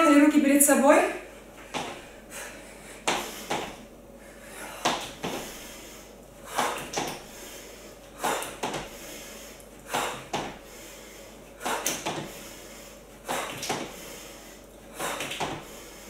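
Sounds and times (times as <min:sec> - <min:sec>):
feet landing on wooden floor: 0:01.6 - 0:02.0, 0:03.0 - 0:03.8, 0:04.8 - 0:05.5, 0:06.6 - 0:07.2, 0:08.3 - 0:08.9, 0:09.9 - 0:10.6, 0:11.6 - 0:12.4, 0:13.3 - 0:14.0, 0:15.2 - 0:15.7.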